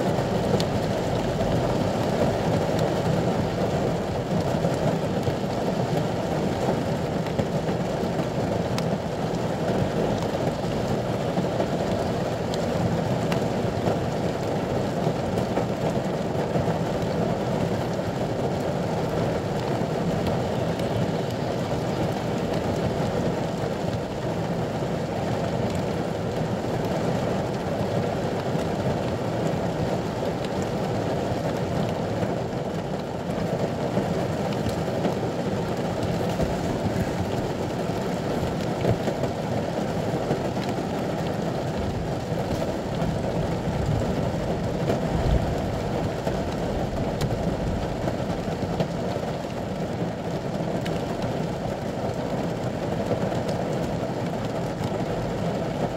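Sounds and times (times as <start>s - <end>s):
heavy rain on vehicle roof: 0.0s - 55.9s.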